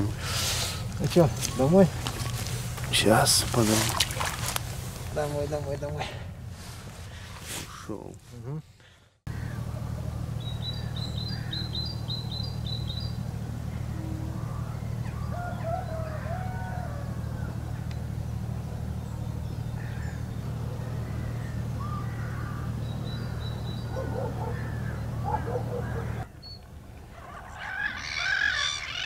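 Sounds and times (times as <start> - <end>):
steady low rumble: 0.0 - 27.6
gulls calling: 0.0 - 29.0
bird calls and chirps: 9.3 - 29.0.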